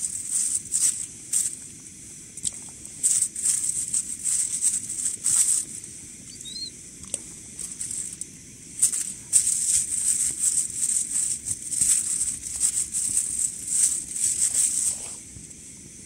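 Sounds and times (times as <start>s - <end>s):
plastic wrapper crinkling: 3.0s - 5.8s, 7.6s - 15.2s.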